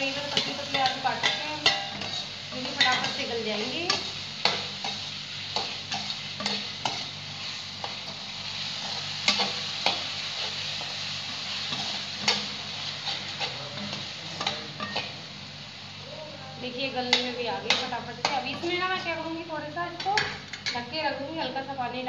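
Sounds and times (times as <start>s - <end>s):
potatoes sizzling in oil: 0.0s - 22.0s
metal spatula scraping pan: 0.1s - 5.0s.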